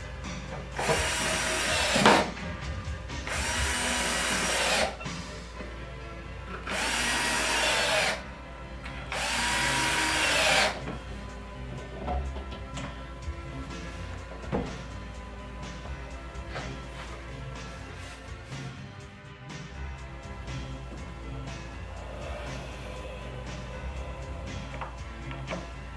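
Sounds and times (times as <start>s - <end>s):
cordless drill driving screws: 0.7s - 2.4s, 3.2s - 5.0s, 6.6s - 8.2s, 9.1s - 10.8s.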